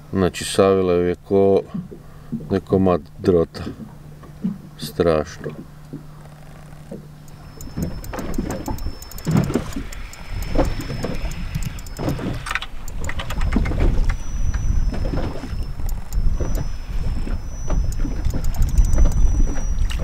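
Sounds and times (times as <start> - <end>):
knocks and sharp clicks: 7.3 - 20.0
wind noise on microphone: 7.3 - 20.0.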